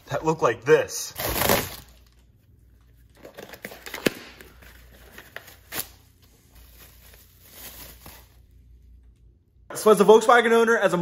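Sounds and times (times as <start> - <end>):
plastic crinkling: 3.1 - 8.5.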